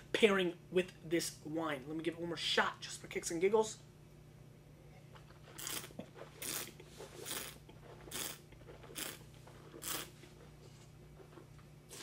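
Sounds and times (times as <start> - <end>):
person slurping wine: 5.5 - 10.2.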